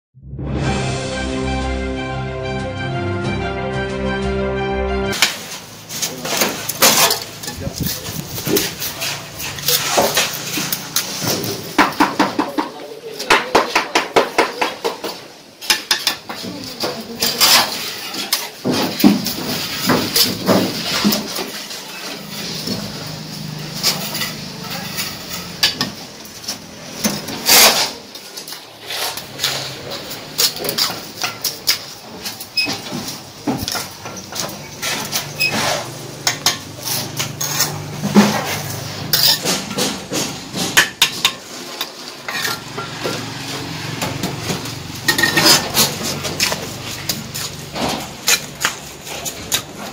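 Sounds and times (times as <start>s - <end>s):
trowel scraping mortar: 5.2s - 12.0s, 27.0s - 32.9s, 33.5s - 49.9s.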